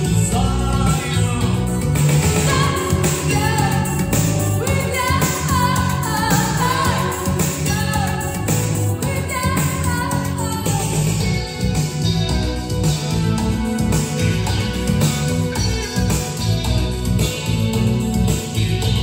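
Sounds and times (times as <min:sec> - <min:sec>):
song with band over loudspeakers: 0:00.0 - 0:19.0.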